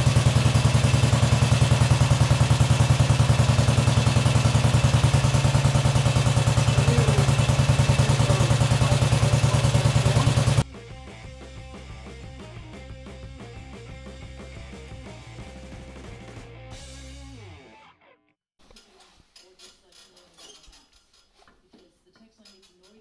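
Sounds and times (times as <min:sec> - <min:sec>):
motorcycle engine idling: 0:00.0 - 0:10.6.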